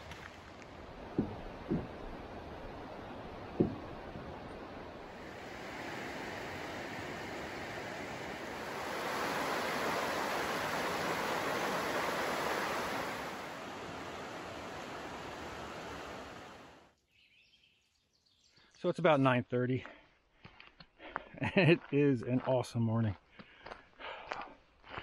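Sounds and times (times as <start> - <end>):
creek rushing over stones: 0.0 - 16.9.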